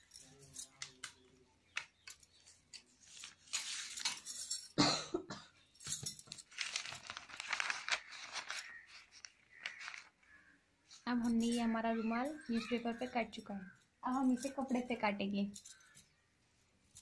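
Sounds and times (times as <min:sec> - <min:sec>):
newspaper rustling: 0:02.3 - 0:04.5, 0:06.1 - 0:10.5.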